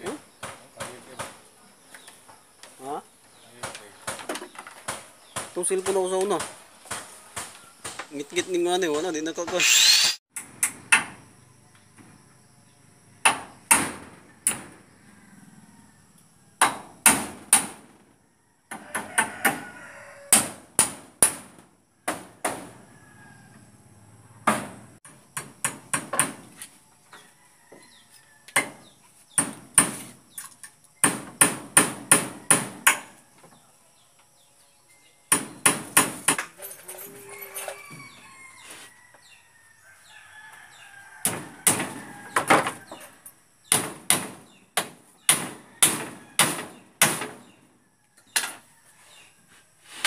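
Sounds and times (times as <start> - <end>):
hammer striking wood: 13.2 - 14.6, 16.6 - 17.8, 20.3 - 21.5, 22.1 - 22.7, 25.4 - 26.5, 29.4 - 30.1, 31.0 - 33.1, 35.3 - 36.5, 43.7 - 47.4.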